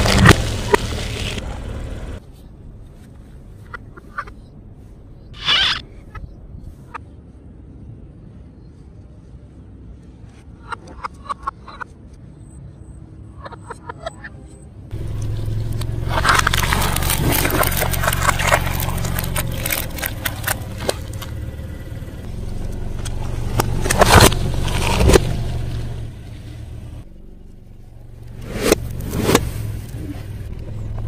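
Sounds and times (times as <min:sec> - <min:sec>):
car engine idling: 0:00.0 - 0:02.2, 0:14.9 - 0:31.0
tyre crushing small objects: 0:15.8 - 0:21.4.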